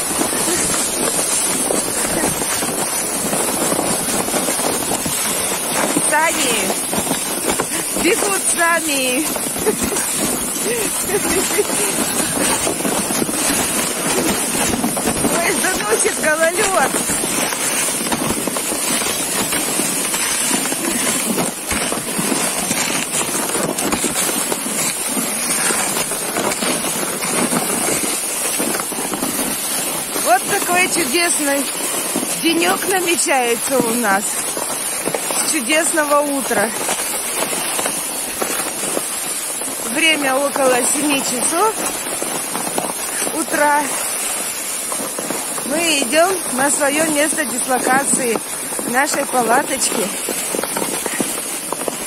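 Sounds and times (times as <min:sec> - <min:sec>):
footsteps crunching on snowy ice: 0:00.0 - 0:52.0
wind on microphone: 0:00.0 - 0:52.0.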